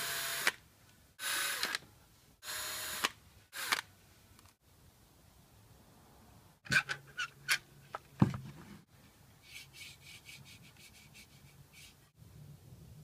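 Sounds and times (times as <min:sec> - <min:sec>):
cordless drill whirring: 0:00.0 - 0:00.6, 0:01.2 - 0:01.8, 0:02.4 - 0:03.9.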